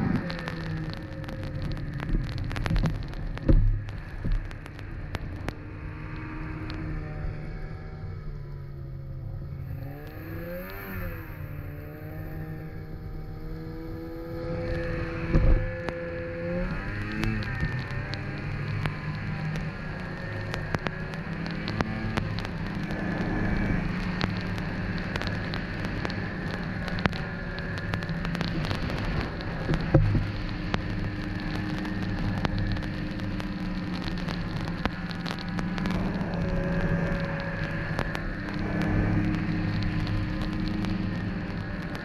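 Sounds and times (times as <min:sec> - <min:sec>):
crackle of sharp clicks: 0:00.0 - 0:42.0
snowmobile engine running: 0:09.4 - 0:42.0.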